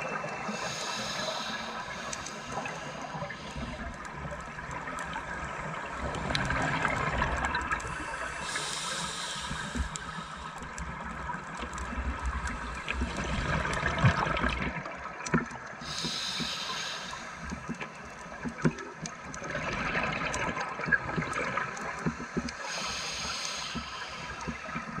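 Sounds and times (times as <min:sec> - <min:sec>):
hissing regulator inhalation: 0:00.3 - 0:04.1, 0:07.9 - 0:10.8, 0:15.8 - 0:18.0, 0:22.5 - 0:25.0.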